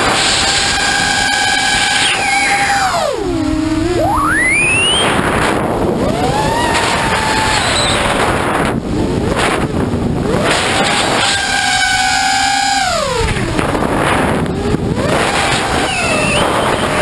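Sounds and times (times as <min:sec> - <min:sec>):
electric motors and propellers whining: 0:00.0 - 0:17.0
wind on microphone: 0:00.0 - 0:17.0.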